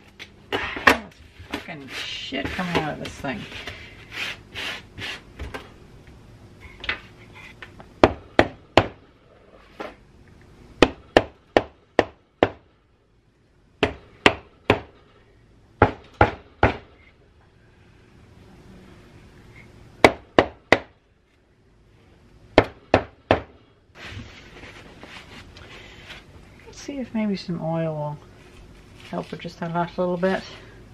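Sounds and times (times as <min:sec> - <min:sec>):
scraping and handling noises: 0:00.0 - 0:04.8, 0:24.0 - 0:26.7, 0:28.4 - 0:30.5.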